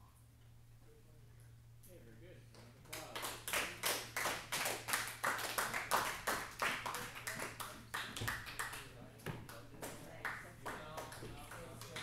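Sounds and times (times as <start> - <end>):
hand clapping: 2.5 - 12.0.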